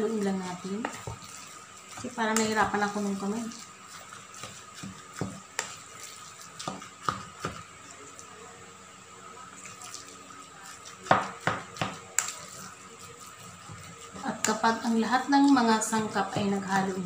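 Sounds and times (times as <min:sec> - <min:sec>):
wet meat mixture squelching: 0:00.0 - 0:08.0
spoon knocking and scraping metal bowl: 0:02.3 - 0:02.8.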